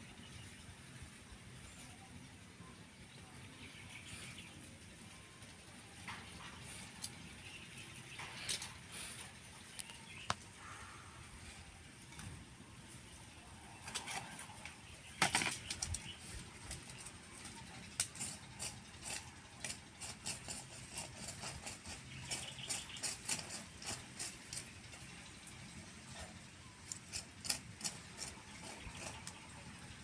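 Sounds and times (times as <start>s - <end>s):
stick scraping a wire grill grate: 6.0s - 10.3s, 13.8s - 29.9s.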